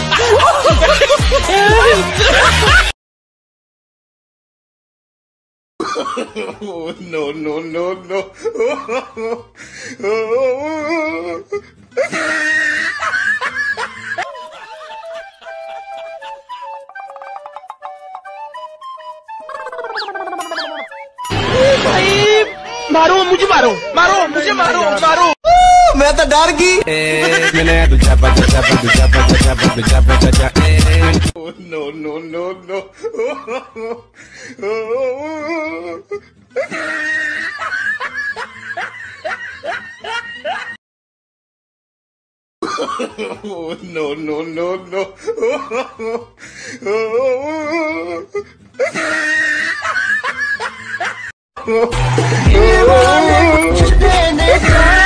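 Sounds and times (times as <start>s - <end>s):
person laughing loudly: 0.0s - 2.9s, 12.0s - 17.1s, 27.0s - 30.2s, 36.6s - 40.8s, 46.9s - 55.0s
music with held stepping melody: 14.2s - 21.4s, 28.0s - 31.3s
wavering voice-like sound: 19.4s - 22.7s.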